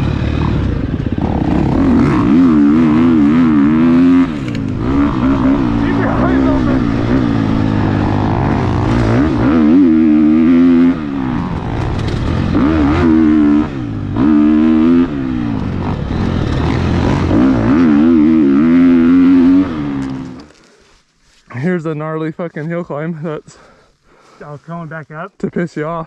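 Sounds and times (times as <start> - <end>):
dirt bike engine revving: 0.0 - 20.6.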